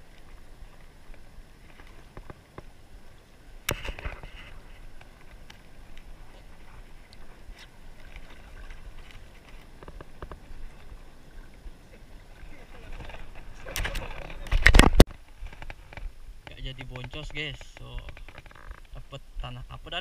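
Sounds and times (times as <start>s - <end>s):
sea water sloshing: 0.0s - 16.4s.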